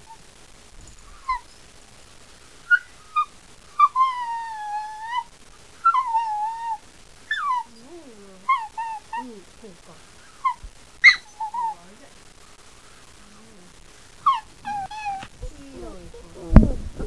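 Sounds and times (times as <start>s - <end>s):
puppy whining and howling: 1.0s - 1.5s, 2.7s - 9.4s, 10.3s - 12.0s, 13.3s - 16.6s.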